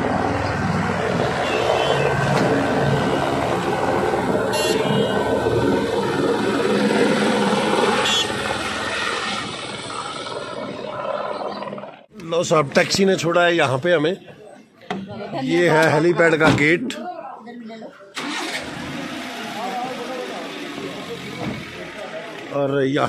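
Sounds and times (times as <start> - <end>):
helicopter flying overhead: 0.0 - 12.1.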